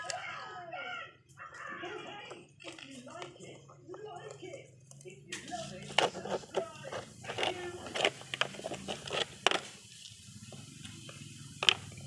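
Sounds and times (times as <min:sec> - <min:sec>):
plastic toy parts clicking: 0:00.0 - 0:00.3, 0:02.2 - 0:09.8, 0:11.1 - 0:12.0.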